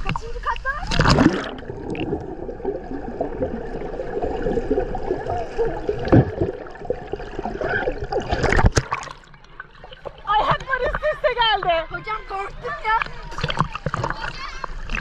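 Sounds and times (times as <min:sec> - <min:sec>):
sea water gurgling and sloshing: 0:00.0 - 0:15.0
sharp splashes or knocks: 0:00.9 - 0:02.3, 0:08.1 - 0:09.4.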